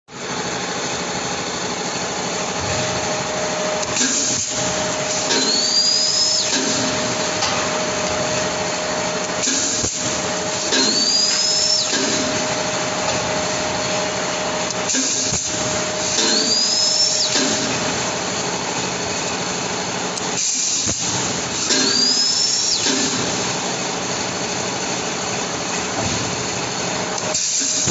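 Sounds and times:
short rising whine: 0:00.1 - 0:18.7
steady machine noise: 0:00.1 - 0:27.9.

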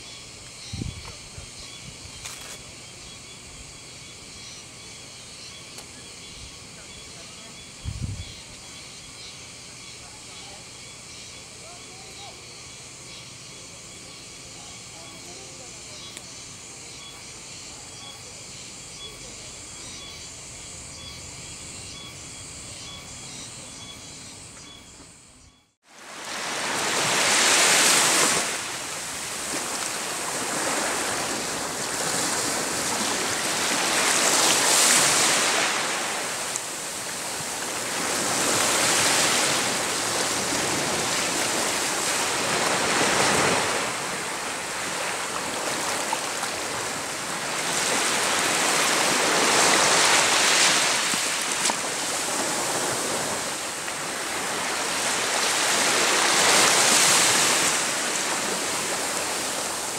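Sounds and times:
small waves washing on beach: 0:25.8 - 0:59.9.

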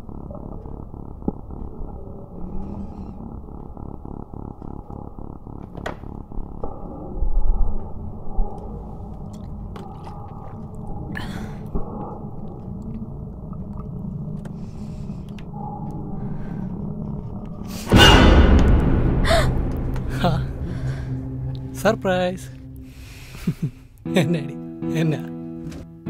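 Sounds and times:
muffled horror film score: 0:00.0 - 0:25.9
loud jump-scare burst: 0:17.9 - 0:21.9.

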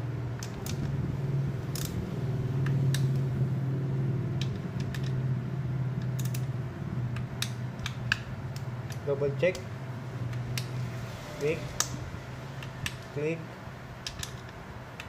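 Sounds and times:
steady low hum: 0:00.0 - 0:15.0
torque wrench clicks: 0:01.7 - 0:02.0, 0:06.0 - 0:06.5, 0:14.0 - 0:15.0.

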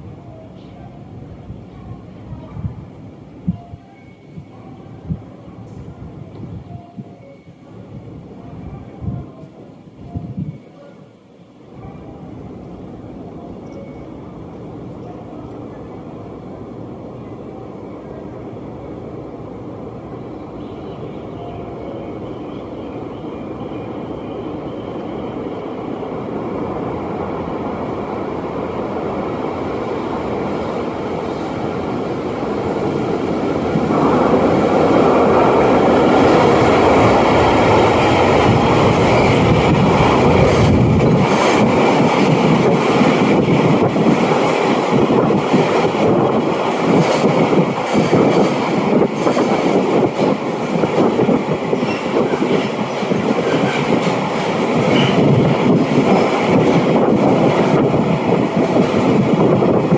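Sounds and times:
train rumble: 0:11.6 - 0:59.9.

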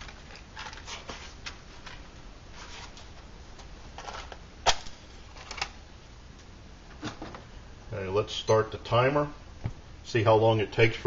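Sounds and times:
objects rustling: 0:00.0 - 0:03.3, 0:03.9 - 0:04.4.

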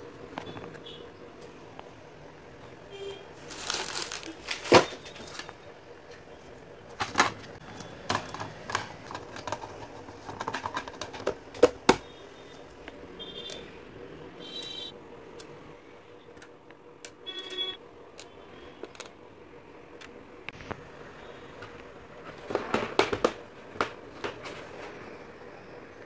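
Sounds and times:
plastic parts clicking and knocking: 0:06.9 - 0:12.1, 0:18.2 - 0:19.2, 0:21.6 - 0:24.6.

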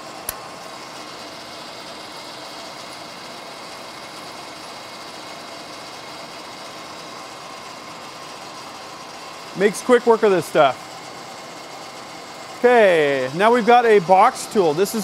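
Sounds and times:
lathe machine hum: 0:00.0 - 0:15.0.

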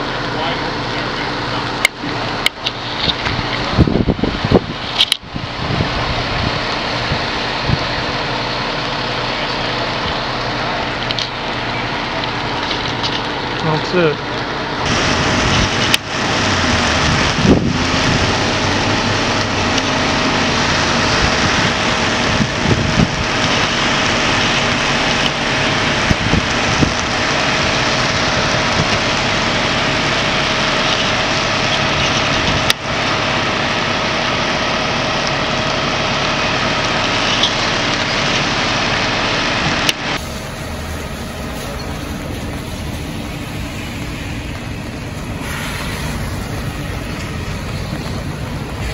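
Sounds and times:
engine and pump drone: 0:00.0 - 0:48.9
constant hiss: 0:40.2 - 0:48.9.

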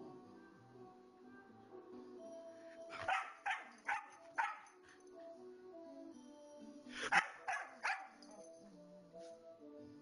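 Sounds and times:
background music: 0:00.0 - 0:10.0
dog barking: 0:03.0 - 0:04.8, 0:07.0 - 0:08.3.

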